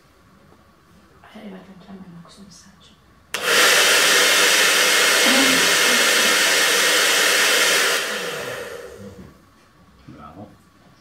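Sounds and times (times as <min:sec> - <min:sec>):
hair dryer running: 0:03.3 - 0:09.4.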